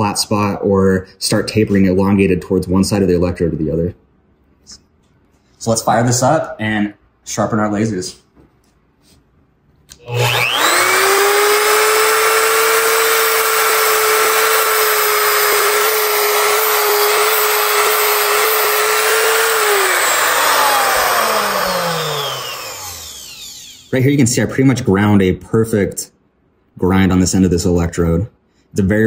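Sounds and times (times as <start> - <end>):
grinder motor whine: 10.0 - 23.9.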